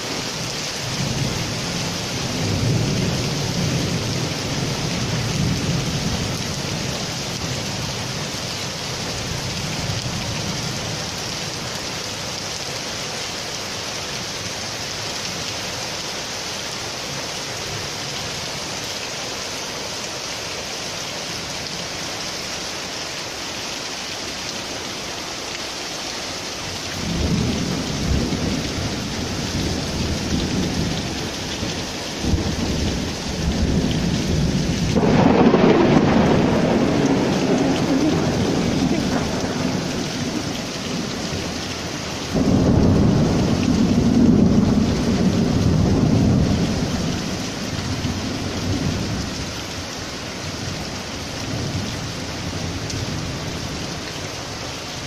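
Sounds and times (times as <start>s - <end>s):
heavy rain pouring: 0.0s - 55.0s
thunder rumbling: 27.0s - 49.4s.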